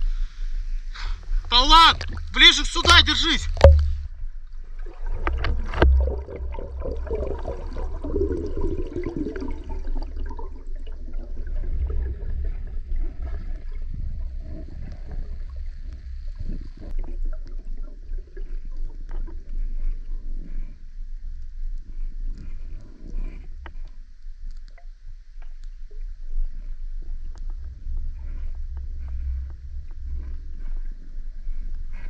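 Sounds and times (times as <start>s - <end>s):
low rumble of current: 0.0s - 32.0s
river water gurgling: 1.7s - 13.6s.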